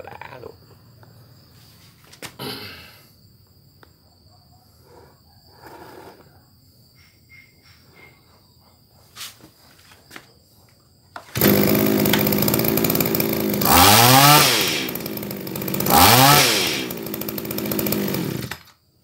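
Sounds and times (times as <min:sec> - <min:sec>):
hedge trimmer engine revving: 0:11.3 - 0:18.7.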